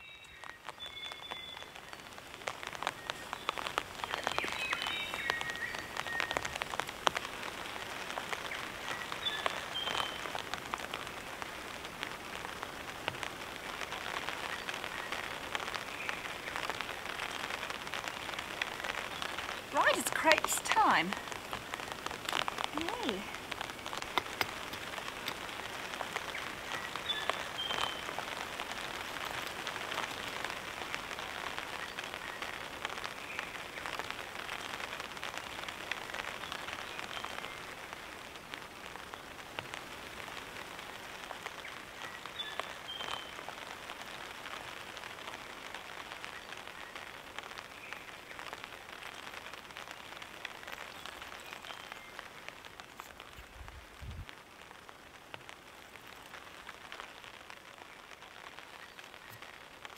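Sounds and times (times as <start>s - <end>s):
light rain pattering on a tarp: 0.0s - 59.9s.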